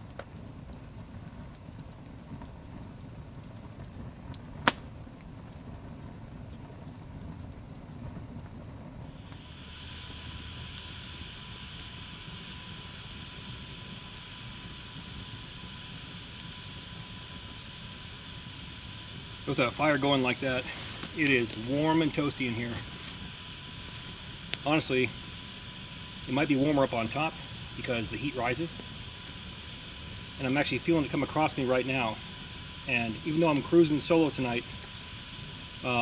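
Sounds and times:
campfire flames rumbling: 0.0 - 36.0
steady hiss: 0.0 - 36.0
wood popping: 3.8 - 6.8, 19.0 - 34.1.

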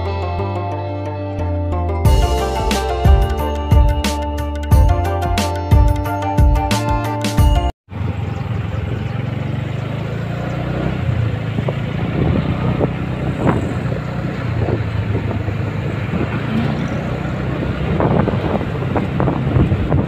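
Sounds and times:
motorbike engine running: 7.9 - 20.0
wind noise on microphone: 11.0 - 20.0.

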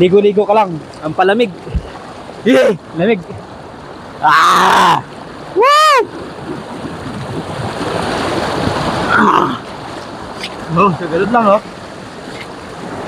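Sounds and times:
man shouting: 4.2 - 6.1.

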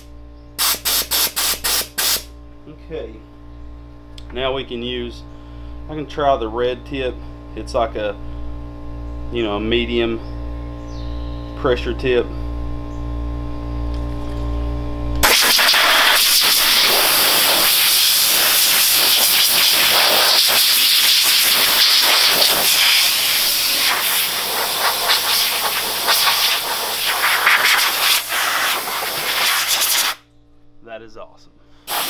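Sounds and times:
compressed air hissing: 0.6 - 2.3, 15.2 - 30.2.

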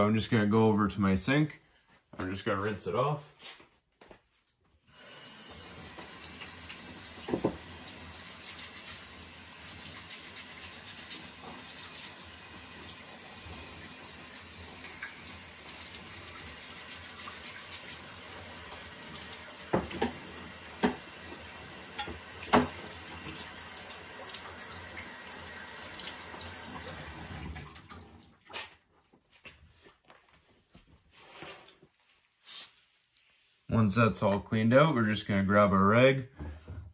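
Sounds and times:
sink tap running: 4.9 - 28.0.

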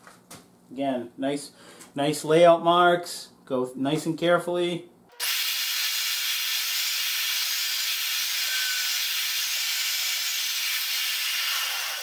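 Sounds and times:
magnetic drill whirring: 5.1 - 12.0.

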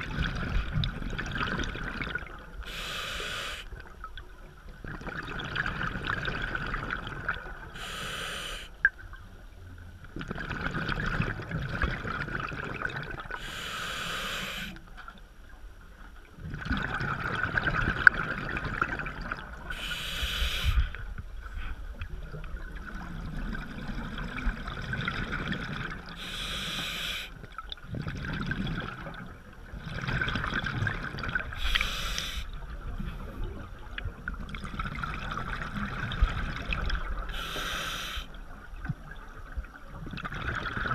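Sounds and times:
exhaled bubbles rushing: 0.0 - 2.6, 4.8 - 7.8, 10.0 - 13.4, 16.4 - 19.8, 20.8 - 26.2, 27.6 - 37.4, 38.7 - 40.9
regulator hissing inhale: 2.6 - 3.7, 7.8 - 8.8, 13.4 - 14.8, 19.7 - 21.0, 26.2 - 27.4, 31.6 - 33.3, 37.3 - 38.4.

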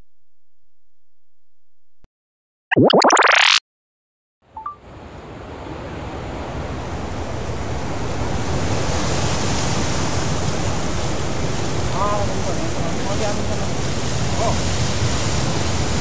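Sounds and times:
ocean surf rushing: 5.4 - 16.0.

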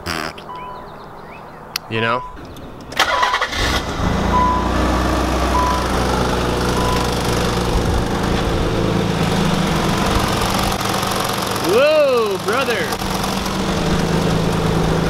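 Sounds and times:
car door chime beeping: 0.5 - 0.8, 2.2 - 2.4
car engine starting and idling: 2.0 - 15.0.

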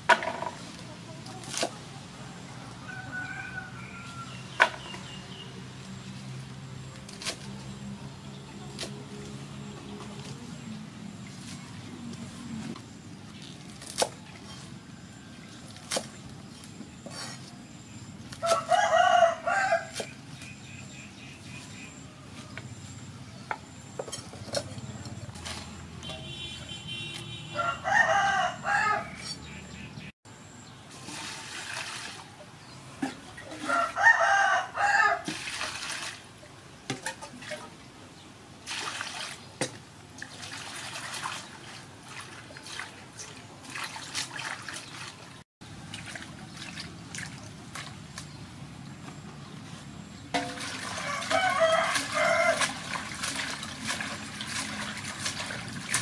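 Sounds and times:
rooster crowing: 2.7 - 4.5, 18.4 - 19.9, 27.5 - 29.2, 33.6 - 35.3, 50.9 - 52.8
greens washed in water: 30.9 - 34.5, 35.1 - 37.8, 38.6 - 48.6, 50.3 - 56.0.

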